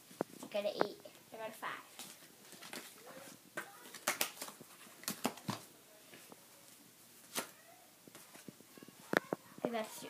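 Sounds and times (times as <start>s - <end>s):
playing cards slapped on wooden floor: 3.6s - 5.6s.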